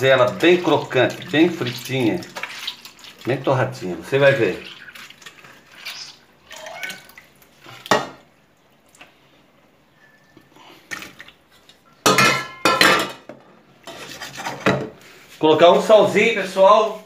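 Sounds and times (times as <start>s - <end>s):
metal pot clanking in sink: 12.0s - 13.3s.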